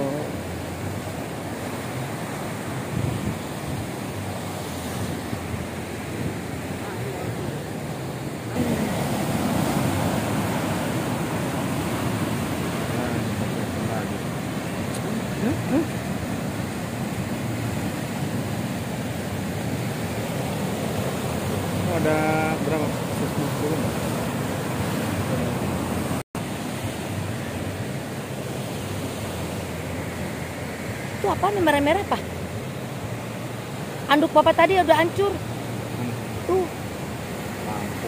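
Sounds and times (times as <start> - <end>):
waves breaking and washing in: 0.0 - 38.0.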